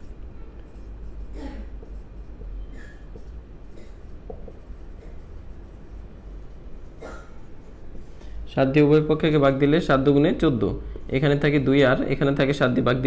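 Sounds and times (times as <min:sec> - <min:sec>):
marker scratching on whiteboard: 0:00.0 - 0:08.4.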